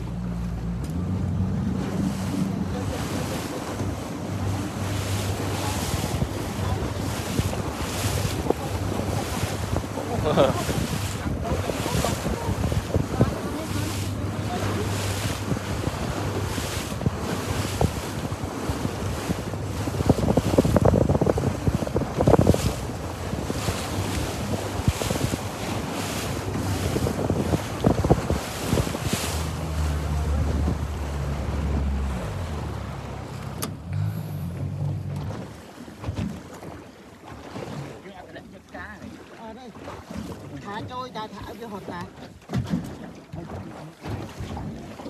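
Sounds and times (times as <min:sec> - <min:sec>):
boat engine hum: 0:00.0 - 0:45.0
water rushing: 0:00.0 - 0:45.0
wind on microphone: 0:01.0 - 0:35.5.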